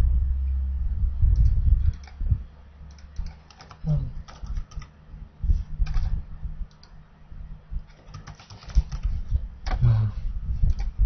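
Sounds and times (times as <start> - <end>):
low steady hum: 0.0 - 11.0
keyboard keys clicking: 1.4 - 2.2, 2.9 - 4.9, 5.8 - 7.0, 7.8 - 9.9, 10.7 - 11.0.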